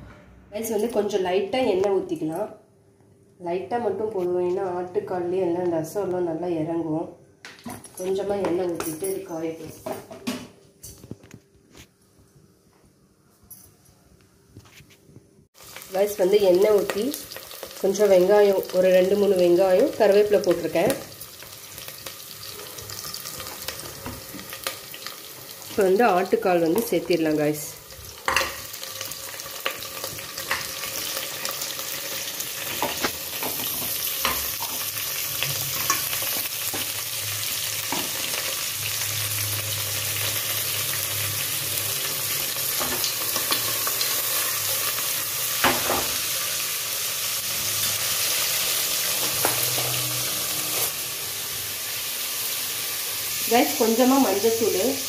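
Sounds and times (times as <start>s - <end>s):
food sizzling in hot oil: 15.6s - 55.0s.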